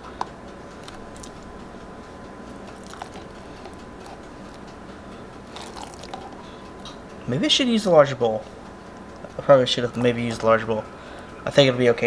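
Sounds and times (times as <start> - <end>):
soft squishes of food: 0.8 - 1.7, 2.5 - 6.9.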